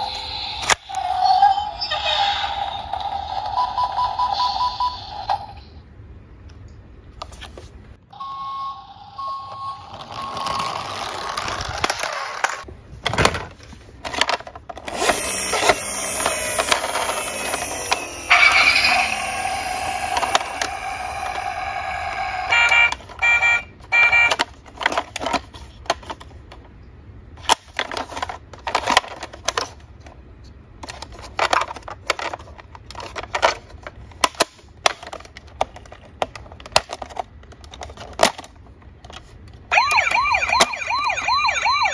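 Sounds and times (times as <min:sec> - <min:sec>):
toy vehicle electronic sound effects: 0:00.0 - 0:05.8, 0:08.1 - 0:12.6, 0:14.9 - 0:24.4, 0:39.7 - 0:41.9
plastic toys clicking and knocking: 0:10.2 - 0:26.7, 0:27.4 - 0:30.2, 0:30.8 - 0:40.7.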